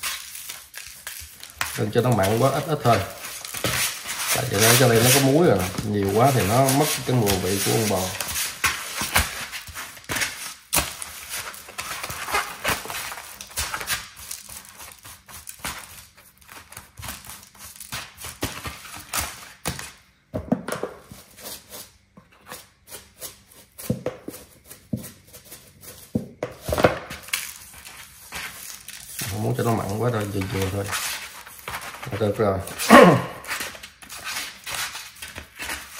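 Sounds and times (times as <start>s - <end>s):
hands rubbing and patting meat: 0.0s - 18.4s, 27.2s - 32.9s.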